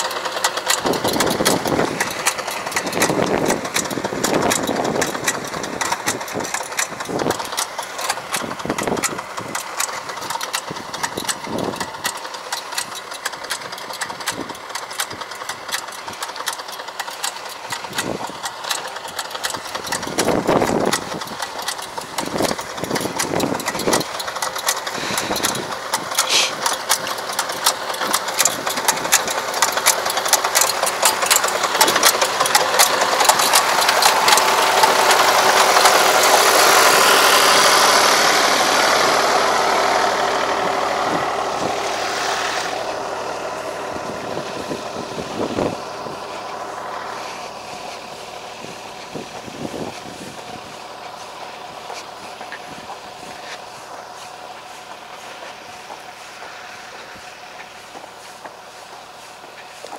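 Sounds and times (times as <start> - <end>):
tractor engine running: 0.0 - 59.9
clicks and low knocks: 0.6 - 37.0.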